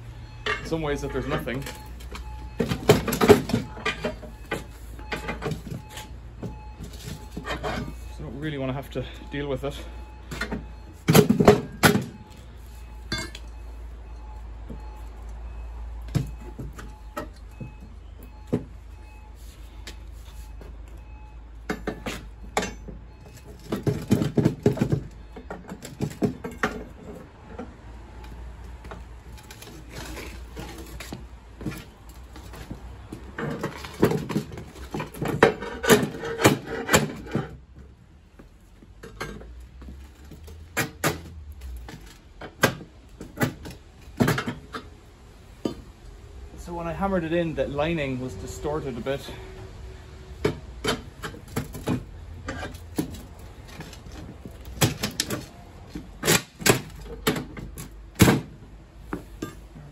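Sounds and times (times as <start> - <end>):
metallic clanks and rattles: 0.3 - 8.2, 10.2 - 12.3, 21.6 - 27.8, 28.8 - 37.9, 38.8 - 45.0, 50.4 - 59.9
crowbar scraping metal safe: 33.4 - 37.6.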